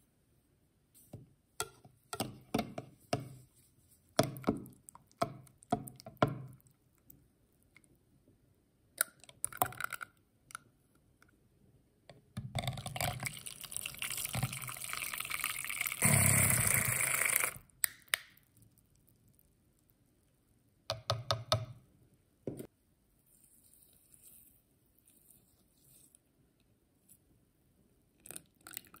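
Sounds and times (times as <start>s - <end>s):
spoon tapping plastic jug: 1.6s - 3.4s
milk frother whirring: 16.0s - 17.6s.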